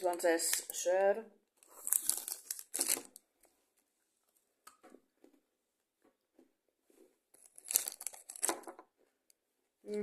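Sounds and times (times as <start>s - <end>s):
wrapper crinkling: 1.6s - 3.3s, 7.3s - 8.8s.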